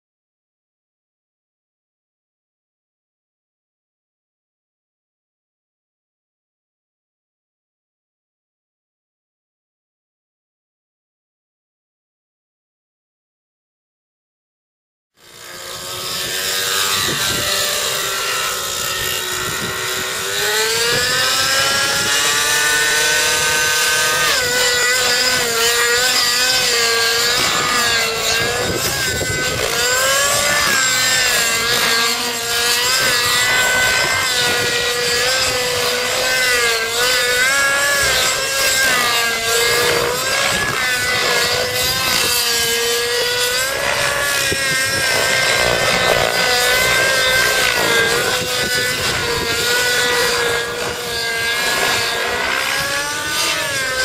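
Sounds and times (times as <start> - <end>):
model helicopter motor and rotor whine: 15.2 - 54.0.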